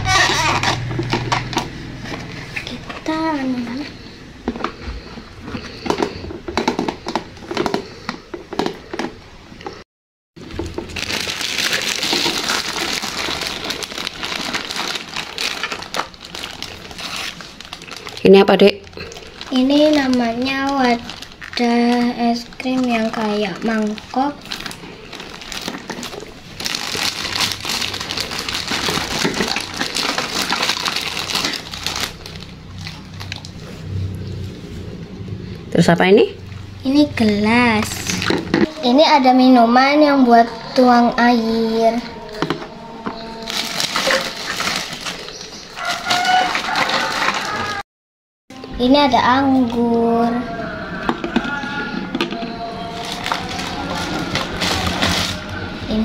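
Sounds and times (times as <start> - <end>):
plastic bag crinkling: 10.4 - 33.9, 37.2 - 47.8, 48.6 - 56.0.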